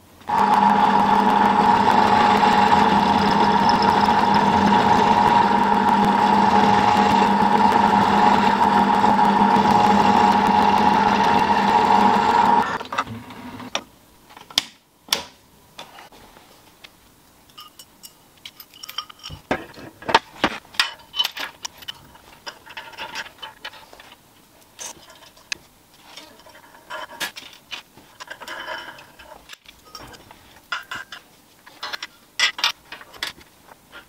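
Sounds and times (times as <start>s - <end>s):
metal tools clicking and clanking: 17.5s - 19.8s, 20.8s - 24.0s, 28.2s - 33.4s.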